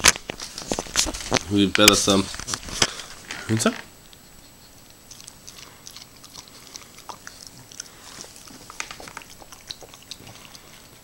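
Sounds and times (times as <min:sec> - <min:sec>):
dog licking and smacking lips: 0:04.1 - 0:11.0.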